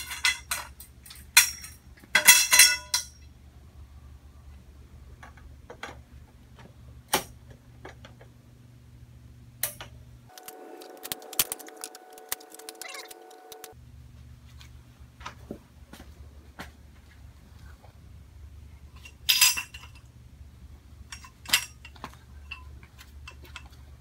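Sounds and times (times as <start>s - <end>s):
frame poles clicking and clinking: 0.0s - 3.3s, 10.3s - 13.8s
steady low hum: 0.0s - 24.0s
thin steady tone: 10.3s - 13.8s.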